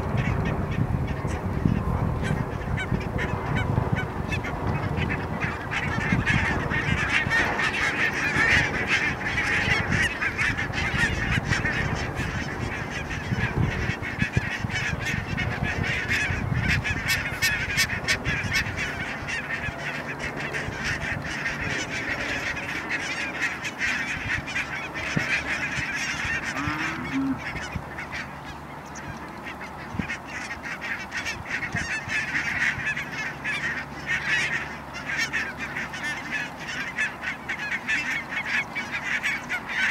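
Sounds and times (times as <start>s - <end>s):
flock of geese honking: 0.0s - 39.9s.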